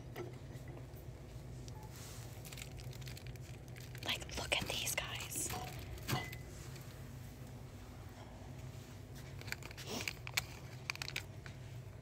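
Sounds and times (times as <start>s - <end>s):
steady low hum: 0.0s - 12.0s
plastic packaging crinkling: 2.0s - 6.9s, 9.3s - 11.5s.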